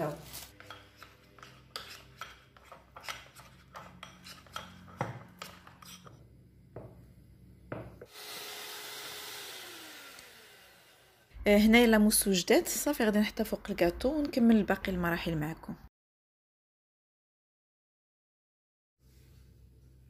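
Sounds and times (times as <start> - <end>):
spatula scraping glass bowl: 0.3 - 6.2.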